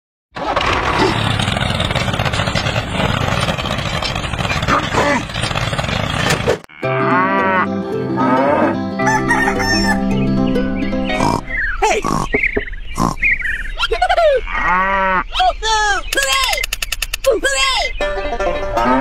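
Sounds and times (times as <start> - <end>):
toy tractor grinding over sand: 0.4 - 6.7
rooster crowing: 9.0 - 10.1.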